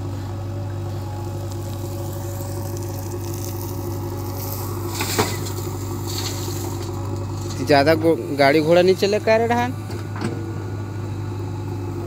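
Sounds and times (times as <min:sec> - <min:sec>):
diesel engine running: 0:00.0 - 0:12.0
soil dumping rush: 0:00.8 - 0:09.0.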